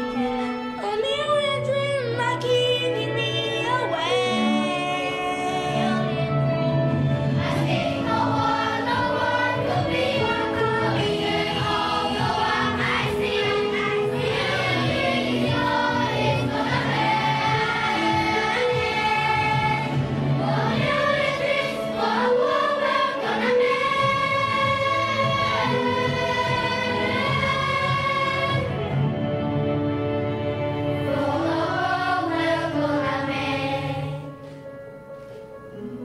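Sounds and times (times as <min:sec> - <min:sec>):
low instrumental accompaniment: 0:00.0 - 0:36.0
children's choir singing: 0:03.5 - 0:29.3, 0:30.6 - 0:34.4.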